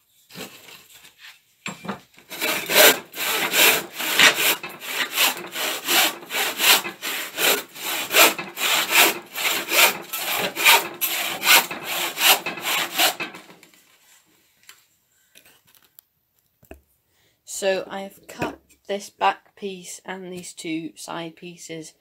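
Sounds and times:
hand saw cutting wood: 0:02.2 - 0:13.7.

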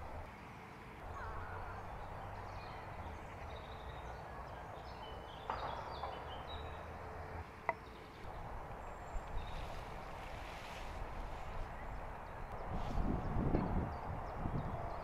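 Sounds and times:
wind rumble on microphone: 0:08.2 - 0:15.0.

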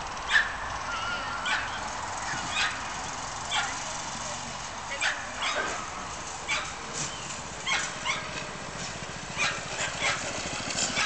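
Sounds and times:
dogs yelping and barking: 0:00.2 - 0:03.8, 0:05.0 - 0:08.4, 0:09.4 - 0:11.0.

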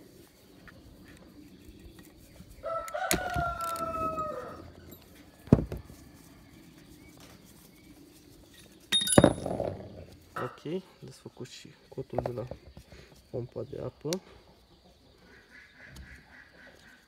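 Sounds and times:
rooster crowing: 0:02.6 - 0:04.9.

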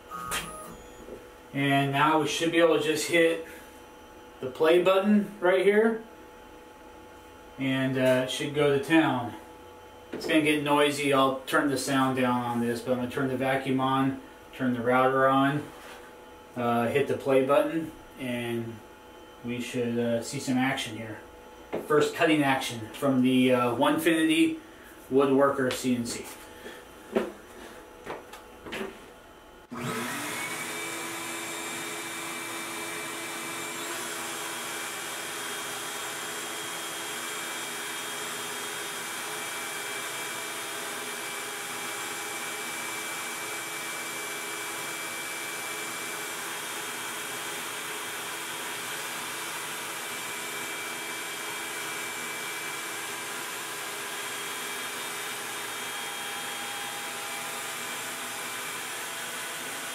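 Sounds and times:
shop vacuum running: 0:00.0 - 0:59.9
router motor whining: 0:29.7 - 0:59.9.

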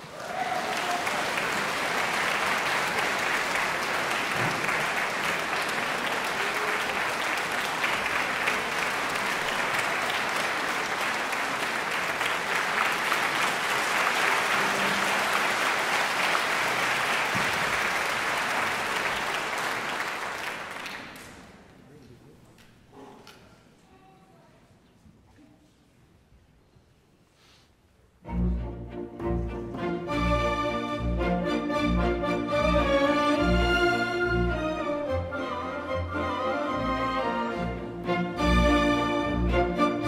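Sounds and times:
audience applauding: 0:00.0 - 0:21.7.

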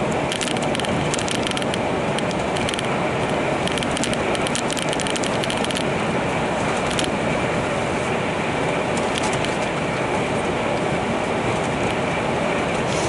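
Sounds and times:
vehicle running noise: 0:00.0 - 0:13.0
rapid clicking rattles: 0:00.2 - 0:05.9, 0:06.8 - 0:07.2, 0:09.0 - 0:09.7.

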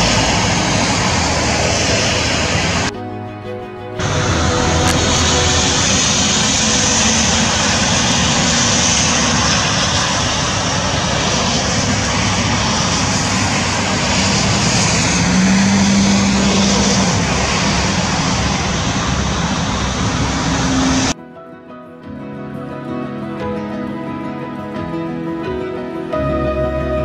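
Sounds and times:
outdoor rushing noise: 0:00.0 - 0:21.2.

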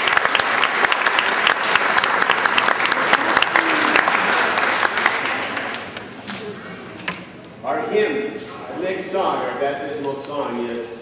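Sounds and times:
congregation applauding: 0:00.0 - 0:06.2.

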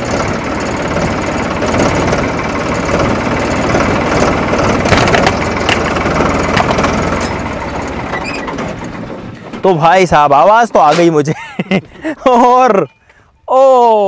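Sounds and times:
tractor diesel engine running: 0:00.0 - 0:13.3.

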